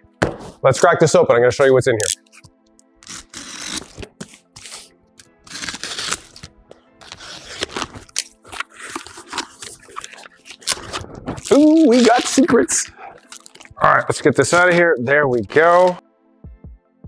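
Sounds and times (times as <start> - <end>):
soft background music: 0.0 - 17.0
knife slitting packing tape: 2.0 - 12.6, 13.2 - 13.8
cardboard flaps pulled open: 5.5 - 12.5.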